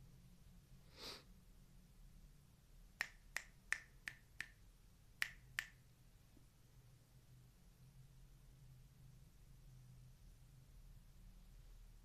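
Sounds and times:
finger snaps: 0:03.0 - 0:04.6, 0:05.2 - 0:05.8.

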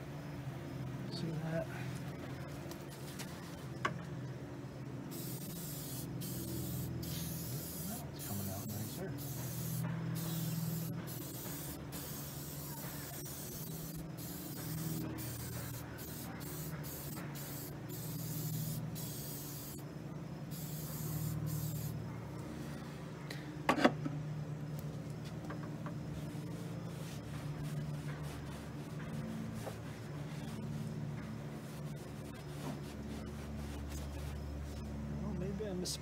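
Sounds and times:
aerosol can spraying: 0:05.1 - 0:19.8, 0:20.5 - 0:22.0.

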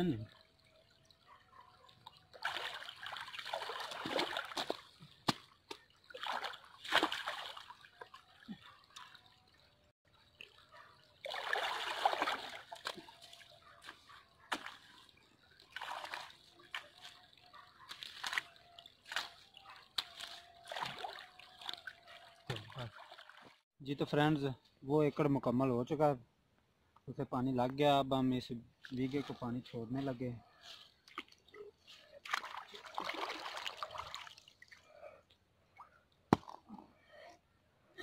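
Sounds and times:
water splashing and sloshing: 0:00.0 - 0:23.7, 0:28.5 - 0:37.0
spade digging wet mud: 0:13.8 - 0:14.9.

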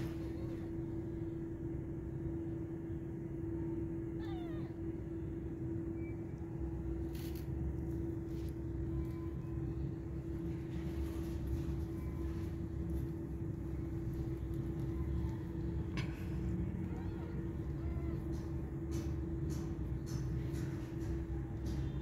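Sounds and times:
steady hum: 0:00.0 - 0:22.0
cat meowing: 0:04.0 - 0:05.1.

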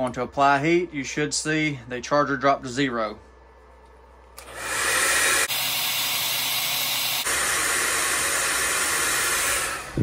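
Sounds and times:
heat gun hissing: 0:04.4 - 0:10.0.

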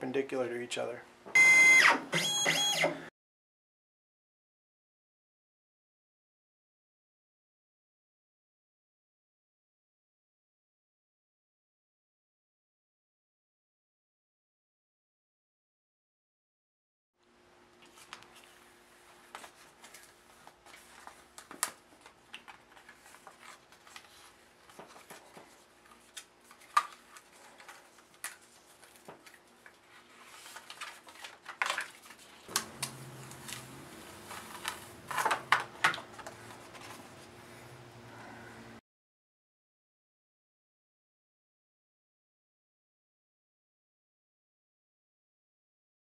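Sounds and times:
faint steady hum: 0:17.2 - 0:38.8
paper crinkling and rustling: 0:17.8 - 0:37.3.

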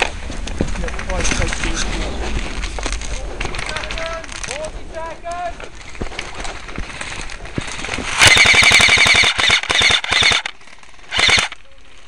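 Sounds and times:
airsoft rifle automatic bursts: 0:08.0 - 0:11.6.

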